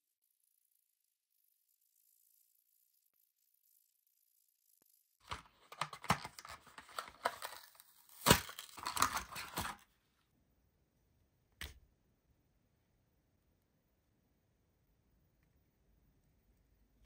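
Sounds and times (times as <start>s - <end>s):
packaging tearing and crinkling: 5.2s - 9.8s.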